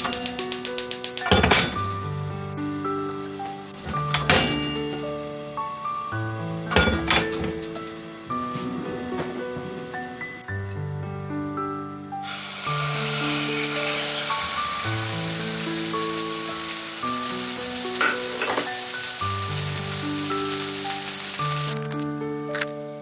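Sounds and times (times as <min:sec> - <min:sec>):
patty sizzling in frying pan: 0:00.0 - 0:01.4, 0:12.2 - 0:23.0.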